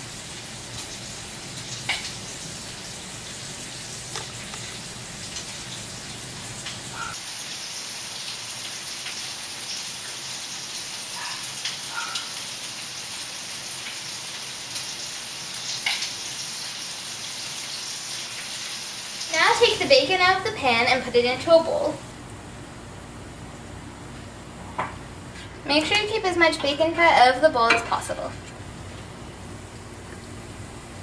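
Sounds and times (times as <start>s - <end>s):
bacon sizzling in a pan: 0.0s - 22.0s.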